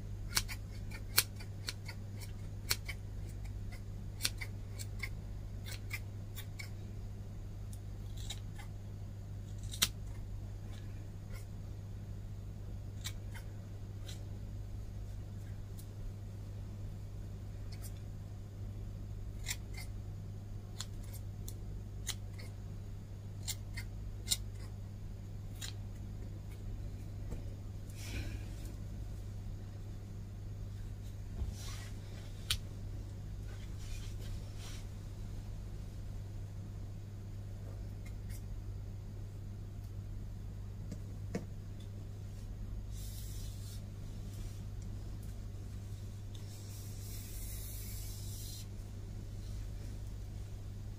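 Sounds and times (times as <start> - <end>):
steady low hum: 0.0 - 50.9
scissors snipping hair: 0.3 - 6.7, 9.5 - 10.1.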